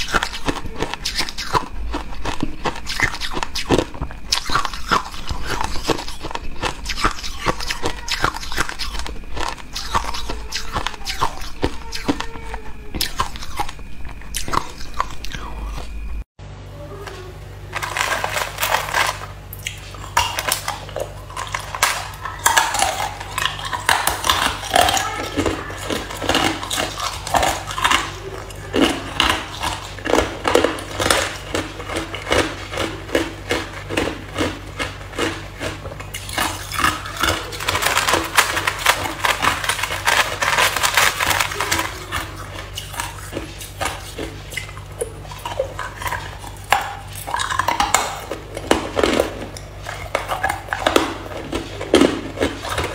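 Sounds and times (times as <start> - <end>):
ice crunching between teeth: 0.0 - 16.0, 17.7 - 52.9
low hum: 0.0 - 52.9
ice clattering in plastic tub: 17.7 - 19.3, 20.1 - 44.0.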